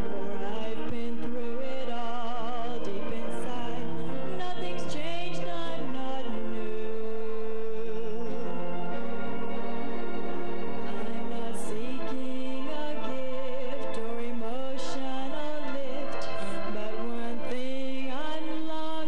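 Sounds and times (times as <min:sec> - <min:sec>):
woman singing slow melody: 0:00.0 - 0:08.4
keyboard accompaniment: 0:00.0 - 0:19.0.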